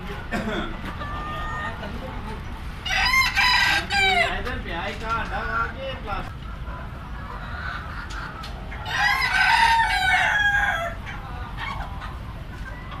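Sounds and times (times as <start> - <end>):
hens clucking: 0.0 - 13.0
rooster crowing: 2.8 - 4.4, 8.8 - 11.0.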